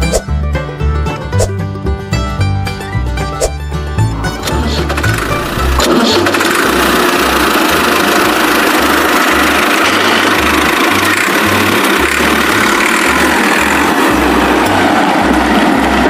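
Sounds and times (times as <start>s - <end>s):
music with pulsing bass: 0.0s - 16.0s
small motor running: 4.5s - 14.8s.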